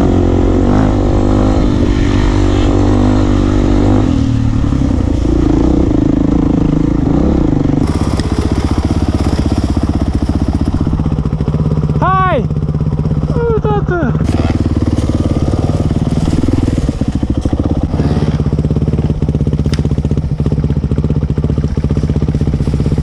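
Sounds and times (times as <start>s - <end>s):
dirt bike engine at low revs: 0.0s - 23.0s
dirt bike engine revving: 0.0s - 23.0s.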